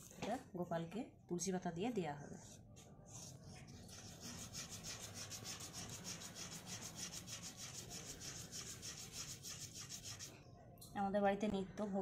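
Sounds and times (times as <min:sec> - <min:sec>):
wood rubbed on wet stone: 0:03.2 - 0:10.3.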